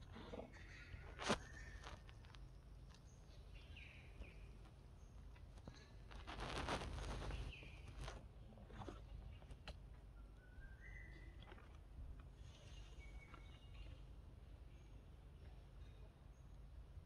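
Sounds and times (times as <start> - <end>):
faint outdoor ambience: 0.0 - 17.0
rustling: 6.1 - 8.2.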